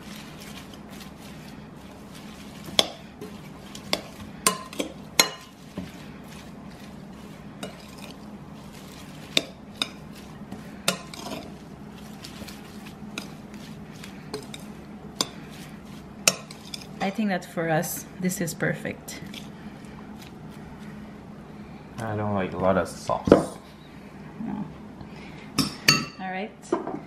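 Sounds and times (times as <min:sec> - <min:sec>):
utensil stirring cabbage: 0:00.0 - 0:18.1, 0:19.0 - 0:21.2.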